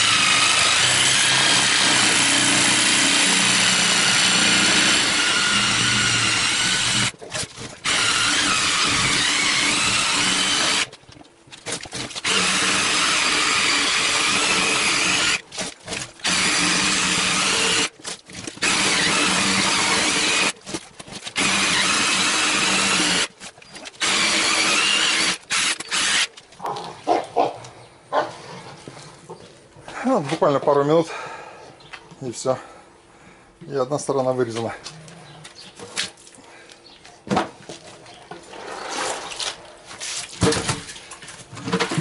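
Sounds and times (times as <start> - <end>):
knocks and rustles: 37.2 - 42.0.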